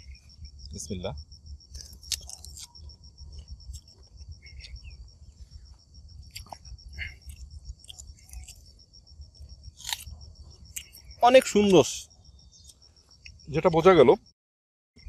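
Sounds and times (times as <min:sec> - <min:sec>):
insects trilling: 0:00.0 - 0:14.3
fruit being bitten and chewed: 0:01.6 - 0:11.8.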